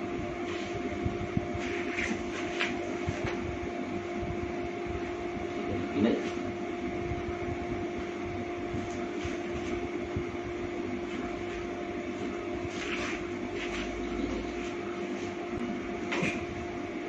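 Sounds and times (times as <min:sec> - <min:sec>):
electrical appliance hum: 0:00.0 - 0:17.0.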